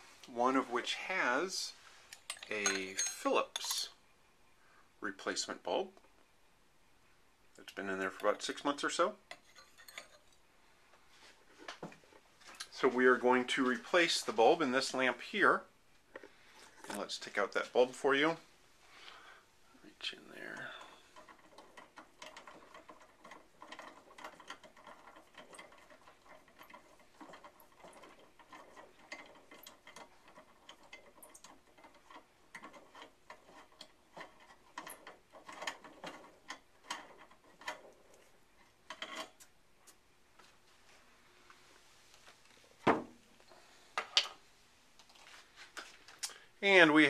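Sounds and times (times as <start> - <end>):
small metal clicks and rattles: 20.4 - 40.0.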